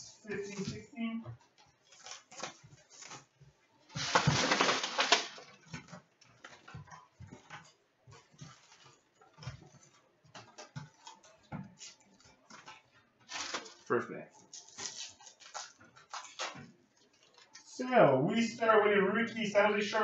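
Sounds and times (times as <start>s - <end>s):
plastic shrink-wrap crinkling and tearing: 1.8s - 5.8s, 13.2s - 17.7s.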